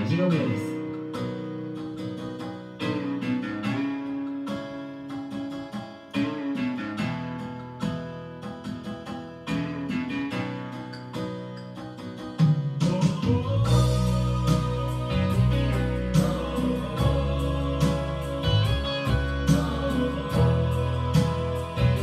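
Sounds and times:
acoustic guitar over backing track: 0:00.0 - 0:22.0.

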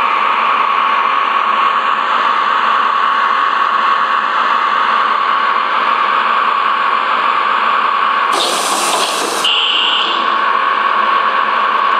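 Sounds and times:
toy train rushing and whining: 0:08.3 - 0:10.6.

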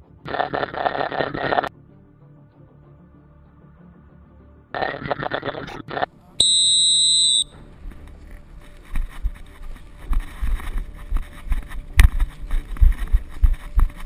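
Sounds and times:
footsteps on rocky trail: 0:07.6 - 0:14.0.

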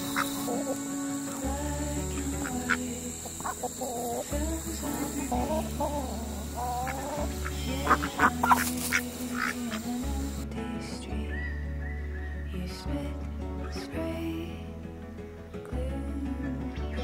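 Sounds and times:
chickens clucking: 0:00.0 - 0:10.4.

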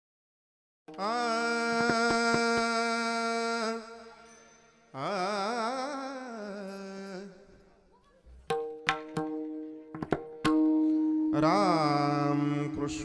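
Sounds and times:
person singing with vibrato: 0:00.9 - 0:07.7, 0:10.6 - 0:13.0.

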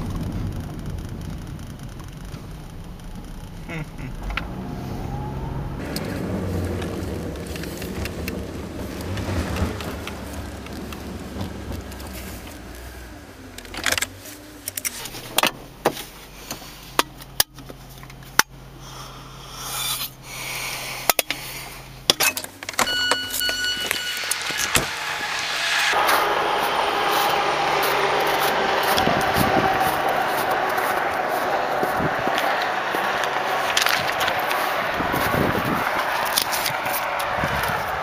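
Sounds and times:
car engine idling: 0:00.0 - 0:38.0
car rolling rumble: 0:00.0 - 0:38.0.

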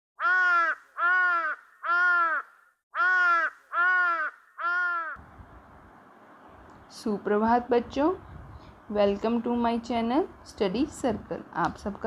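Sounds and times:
crow cawing: 0:00.2 - 0:05.2.

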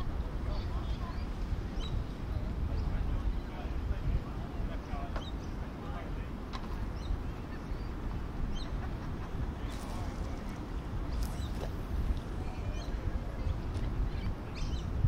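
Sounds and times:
wind: 0:00.0 - 0:15.0
water rumbling: 0:09.5 - 0:14.2
bird calls and chirps: 0:12.4 - 0:15.0.

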